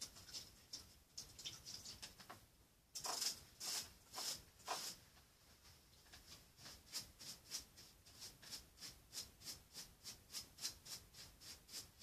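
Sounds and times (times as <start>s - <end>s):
paintbrush strokes scratching: 3.0s - 12.0s.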